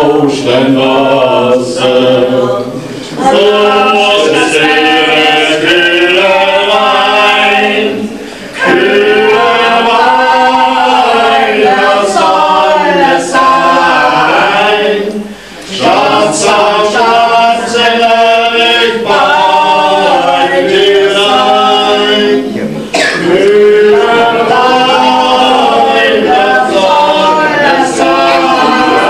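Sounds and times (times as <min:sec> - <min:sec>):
voices singing without instruments: 0:00.0 - 0:29.0
singers breathing: 0:02.8 - 0:03.2, 0:08.1 - 0:08.6, 0:15.2 - 0:15.8.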